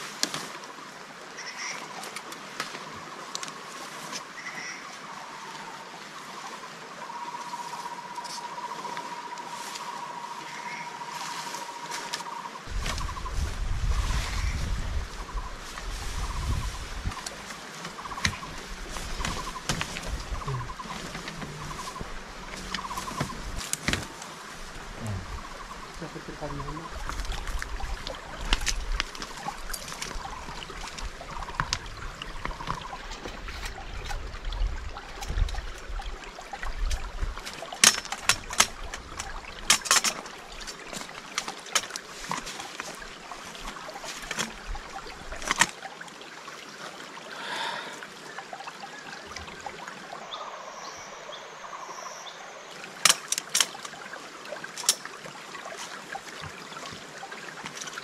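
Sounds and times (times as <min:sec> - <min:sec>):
water trickling: 0:00.0 - 0:58.0
sharp knocks and clicks: 0:37.4 - 0:40.3.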